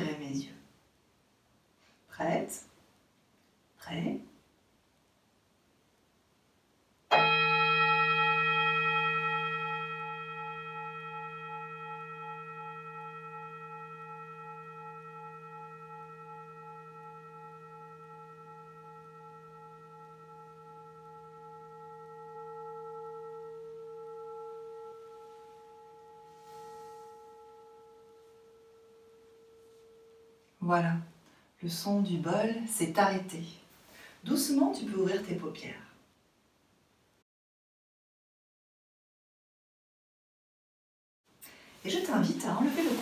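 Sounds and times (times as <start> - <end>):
metal singing bowl ringing: 7.1 - 30.6.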